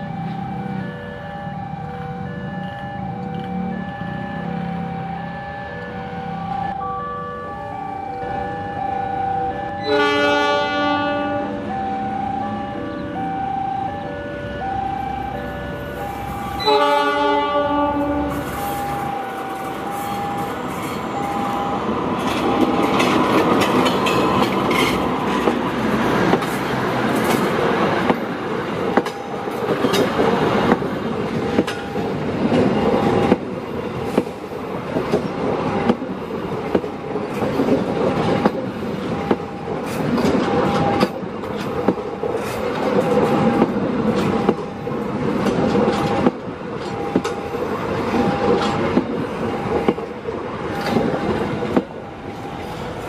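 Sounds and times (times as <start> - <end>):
train wheels clattering on rails: 18.0 - 53.0.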